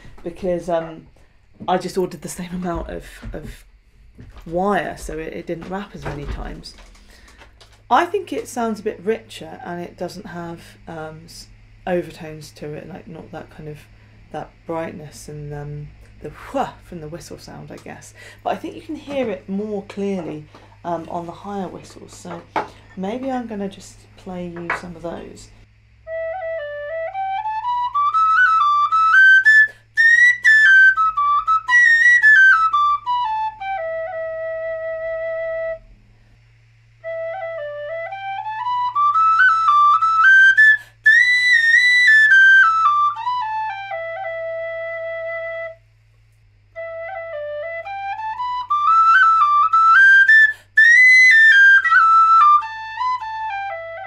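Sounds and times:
tin whistle playing scales: 26.0s - 36.3s, 37.0s - 45.9s, 46.7s - 54.0s.

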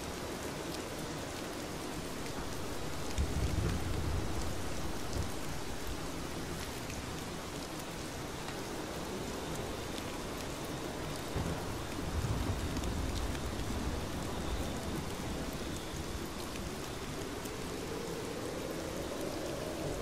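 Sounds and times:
heavy rain: 0.0s - 20.0s
thunder rumble: 2.3s - 6.1s.

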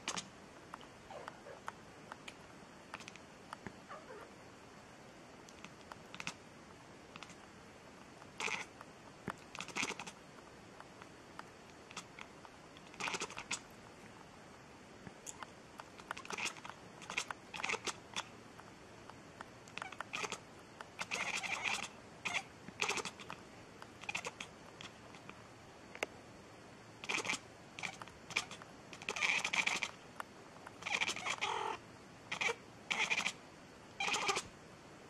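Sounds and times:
sharp clicks: 0.0s - 3.8s, 5.5s - 6.4s
cat meowing: 3.9s - 4.3s, 30.8s - 33.4s, 34.0s - 34.5s.

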